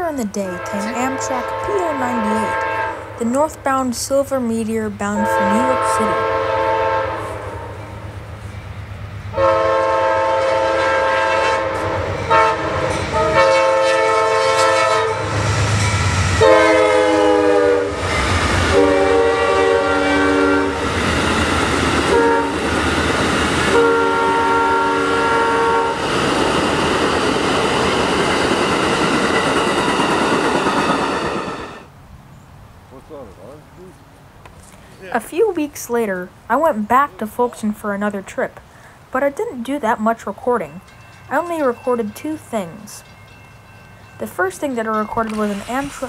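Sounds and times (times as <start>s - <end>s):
train horn blasts: 0.4s - 3.2s, 5.1s - 7.9s, 9.3s - 20.8s, 22.1s - 22.6s, 23.7s - 26.0s
train coaches clickety-clack: 26.0s - 31.8s, 40.6s - 46.0s.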